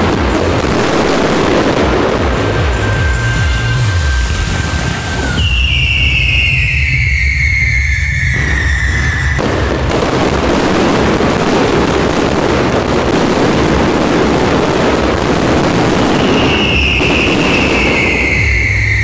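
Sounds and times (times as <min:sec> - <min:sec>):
fireworks crackling: 0:00.0 - 0:19.0
high falling tone: 0:01.6 - 0:10.4.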